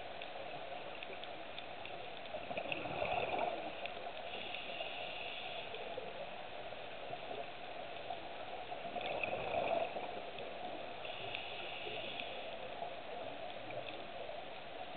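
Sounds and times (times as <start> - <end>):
muffled underwater hiss: 0.0 - 14.9
bubbles: 2.3 - 4.0, 8.8 - 10.2
scuba regulator breathing: 4.2 - 6.0, 11.0 - 12.7.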